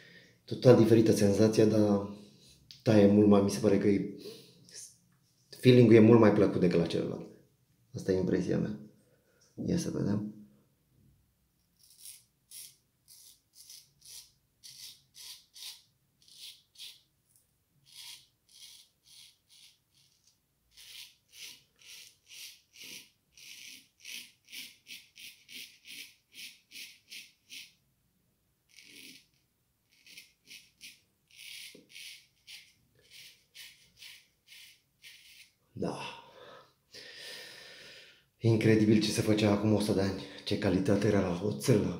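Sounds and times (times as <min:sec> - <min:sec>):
straight razor scraping stubble: 0:11.8 - 0:17.1, 0:17.8 - 0:27.7, 0:28.7 - 0:35.6.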